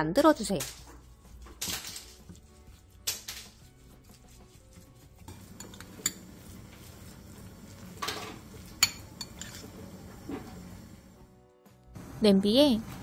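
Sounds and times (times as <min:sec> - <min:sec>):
spoon scraping in ceramic bowl: 0:00.6 - 0:11.1
spoon clinking on bowl: 0:05.3 - 0:06.4, 0:08.0 - 0:09.8.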